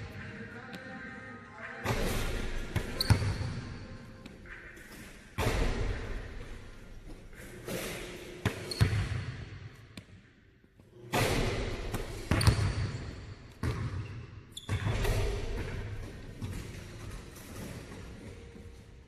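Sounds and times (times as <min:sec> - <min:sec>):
basketballs bouncing on hardwood floor: 0:01.9 - 0:03.6, 0:11.2 - 0:18.0.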